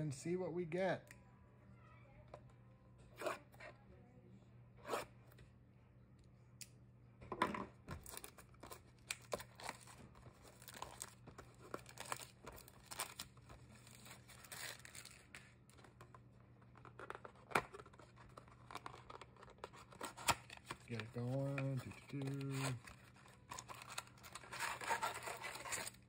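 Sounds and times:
plastic wrap crackling: 0:08.0 - 0:15.8
cardboard box opening: 0:17.1 - 0:26.0.

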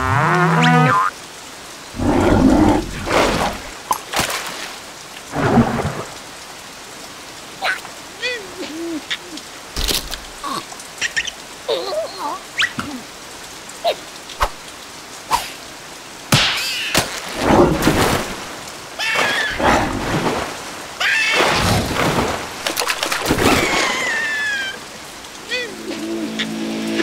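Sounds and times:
heavy rain downpour: 0:00.0 - 0:27.0
high wavering sounds: 0:25.5 - 0:27.0.

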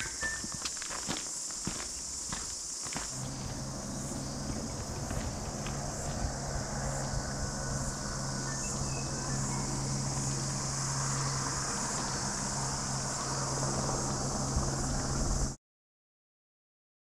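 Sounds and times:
insects chirring: 0:00.0 - 0:15.6
motorcycle engine running: 0:03.0 - 0:15.6.

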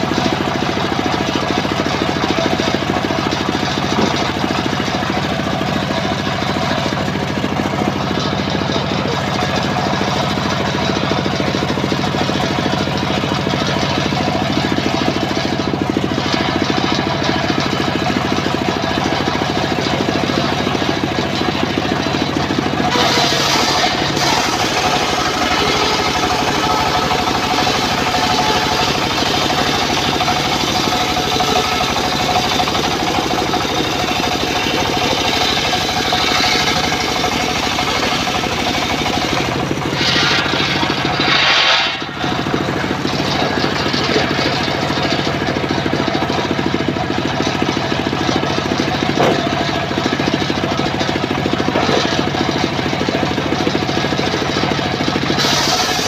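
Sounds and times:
circular saw motor drone: 0:16.3 - 0:46.7, 0:55.3 - 0:56.0
saw blade grinding through log: 0:22.3 - 0:45.1, 0:55.4 - 0:56.0.

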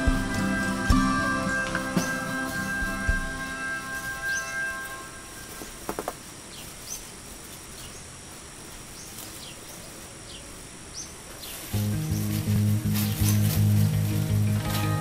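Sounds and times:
faint high chirps: 0:00.0 - 0:05.9
soft steady hiss: 0:00.0 - 0:15.0.

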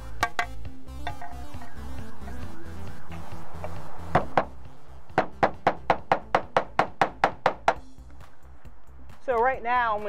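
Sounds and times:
music: 0:00.0 - 0:10.0
hammer nailing roofing slate: 0:05.2 - 0:07.8.

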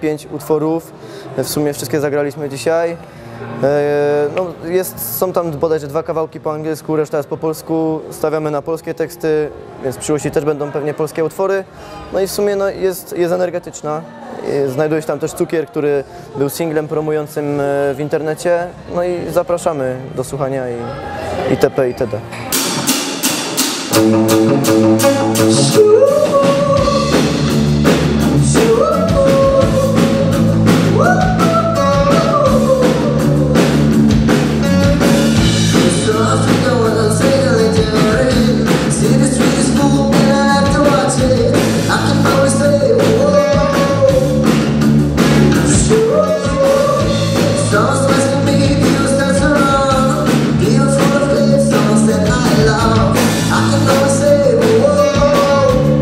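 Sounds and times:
drum kit steady beat: 0:22.5 - 0:56.0
bass guitars: 0:23.8 - 0:56.0
distorted electric guitar: 0:23.8 - 0:56.0
man singing: 0:23.9 - 0:56.0.

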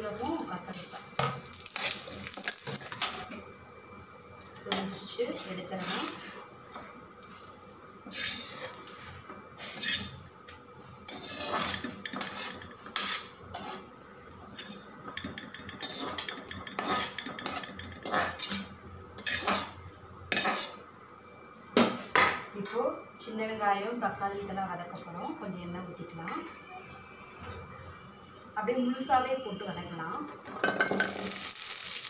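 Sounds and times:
metal ladle scraping metal pan: 0:05.3 - 0:06.5, 0:08.0 - 0:09.1, 0:09.7 - 0:10.3, 0:11.1 - 0:13.9, 0:15.8 - 0:20.8.

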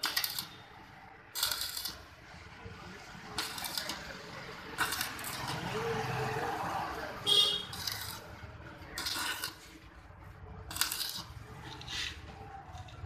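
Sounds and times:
arc welding crackling: 0:00.0 - 0:13.0.

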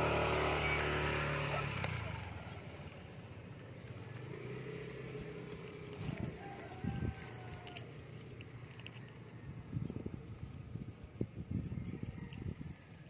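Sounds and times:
motorcycle passing: 0:00.0 - 0:12.9.

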